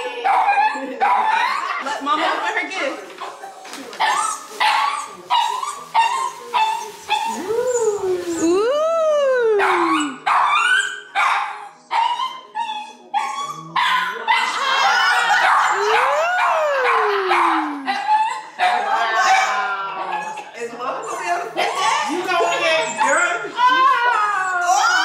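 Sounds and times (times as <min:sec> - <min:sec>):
small dogs barking and yapping: 0:00.0 - 0:01.8, 0:09.4 - 0:25.0
dog howling: 0:06.6 - 0:10.2, 0:12.5 - 0:18.4.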